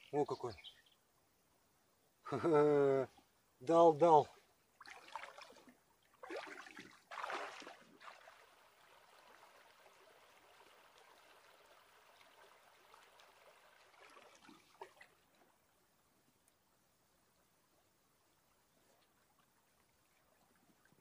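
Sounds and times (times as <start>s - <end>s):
loud splashes in water: 6.2s - 9.8s.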